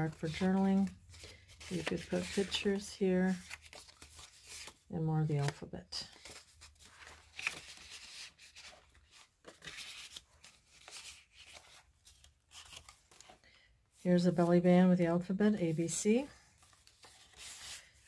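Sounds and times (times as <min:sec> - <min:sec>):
paper rustling and sliding: 0:06.1 - 0:13.4, 0:16.4 - 0:18.0.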